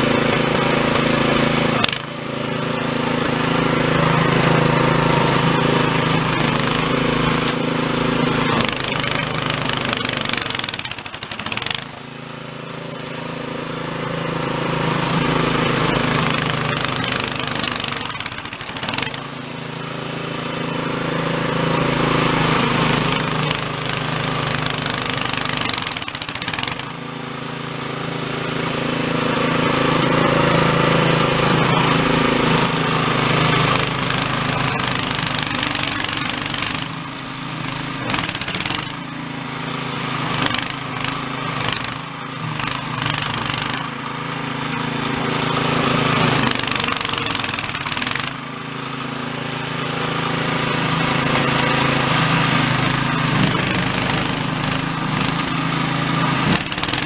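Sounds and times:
snowblower engine droning: 0:00.0 - 0:57.0.

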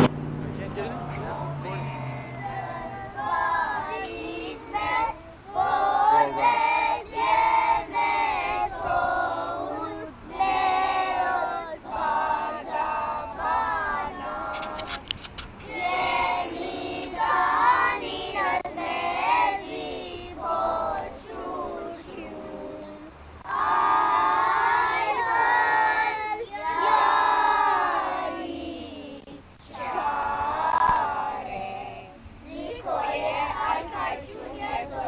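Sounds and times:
children singing: 0:01.1 - 0:15.0, 0:15.6 - 0:35.0
cluster of clicks: 0:14.5 - 0:15.6.

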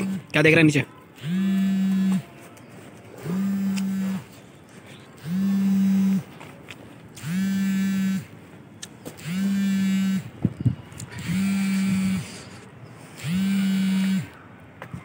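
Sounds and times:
low electric buzz pulses: 0:01.2 - 0:02.2, 0:03.2 - 0:04.3, 0:05.2 - 0:06.3, 0:07.2 - 0:08.4, 0:09.2 - 0:12.6, 0:13.2 - 0:14.4.

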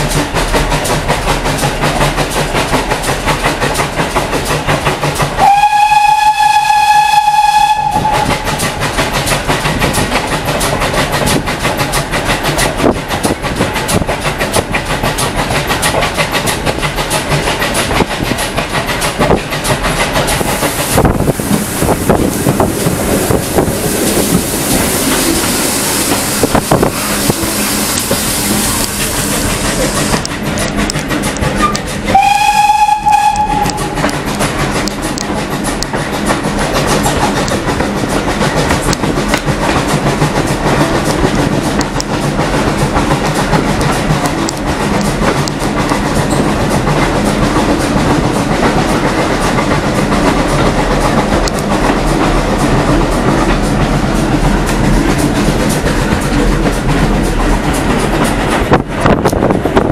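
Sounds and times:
train rumbling: 0:00.0 - 0:59.9
wheels clacking over rail joints: 0:00.0 - 0:59.9
train whistle blast: 0:05.4 - 0:08.8, 0:31.6 - 0:34.1.

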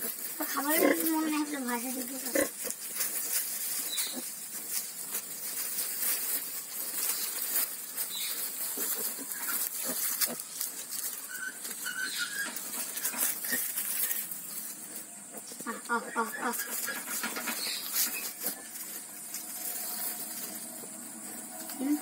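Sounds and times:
piglet high squeaks: 0:11.1 - 0:13.7.

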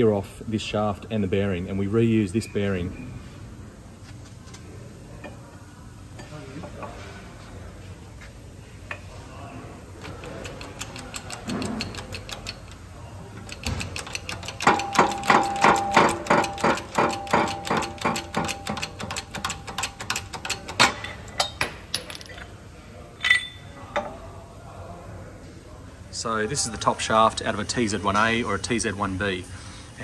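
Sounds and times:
metal parts clinking: 0:10.0 - 0:12.8, 0:13.4 - 0:22.6, 0:23.2 - 0:23.7
hydraulic press clicking: 0:10.0 - 0:21.7.

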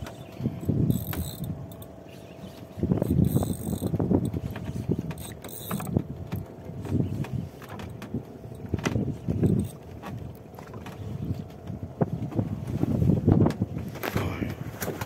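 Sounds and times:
fishing reel clicking: 0:00.6 - 0:01.9, 0:03.0 - 0:04.4, 0:05.1 - 0:05.9.

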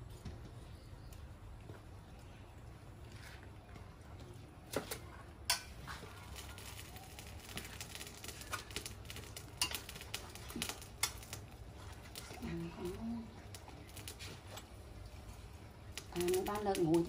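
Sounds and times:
metal tongs clinking on pot: 0:04.7 - 0:11.4.

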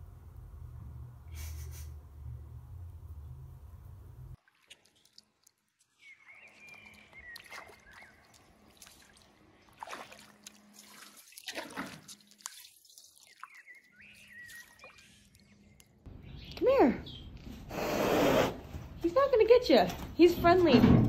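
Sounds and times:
water splashing and dribbling: 0:04.4 - 0:16.1.

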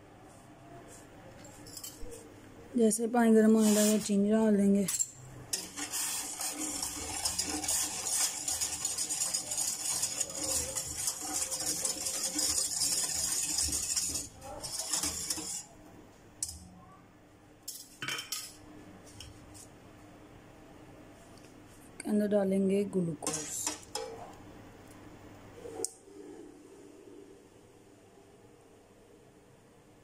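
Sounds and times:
whisk scraping in a metal saucepan: 0:03.5 - 0:04.2, 0:05.5 - 0:15.7, 0:23.2 - 0:24.0.

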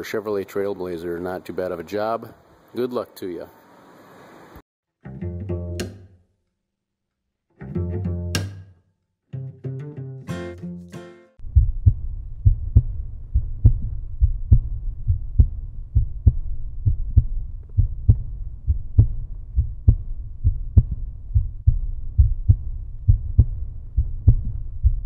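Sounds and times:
deep heavy thumps: 0:11.4 - 0:25.0
low rumble: 0:11.4 - 0:25.0.

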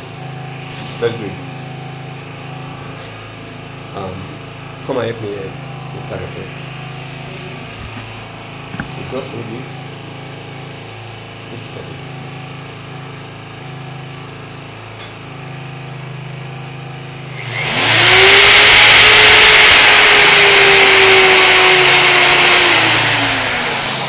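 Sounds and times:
electric drill whining: 0:17.2 - 0:24.0.

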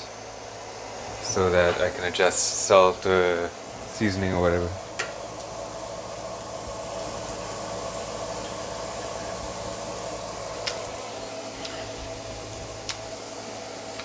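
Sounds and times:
extractor fan whirring: 0:00.0 - 0:14.0.

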